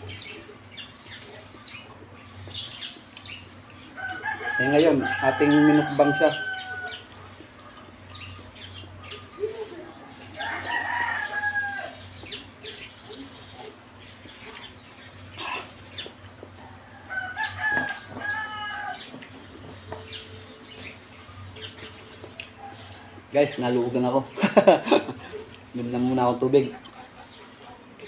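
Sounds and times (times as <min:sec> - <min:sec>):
clicks and smacks of eating: 0:00.0 - 0:04.6, 0:06.6 - 0:09.5, 0:10.6 - 0:23.0, 0:25.0 - 0:25.7, 0:26.7 - 0:28.0
rooster crowing: 0:03.9 - 0:07.1, 0:10.0 - 0:12.3, 0:16.7 - 0:19.1.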